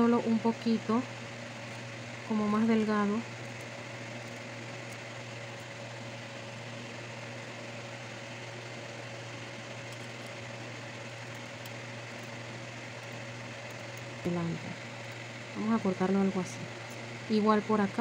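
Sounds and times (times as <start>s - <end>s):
steady mechanical hum: 0.0s - 18.0s.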